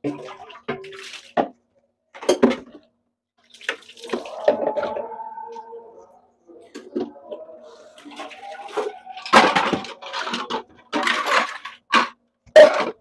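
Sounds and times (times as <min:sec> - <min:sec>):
dishes clattering: 0:04.0 - 0:05.7, 0:06.6 - 0:13.0.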